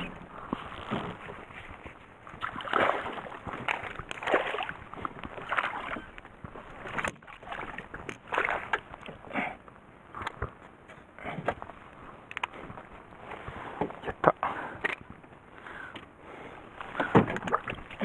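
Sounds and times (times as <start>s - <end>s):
fish splashing in water: 2.3s - 6.1s, 6.7s - 8.9s.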